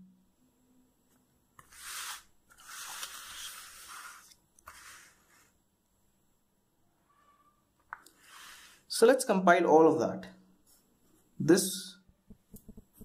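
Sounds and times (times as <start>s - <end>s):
paper notebook rustling: 1.6s - 5.5s.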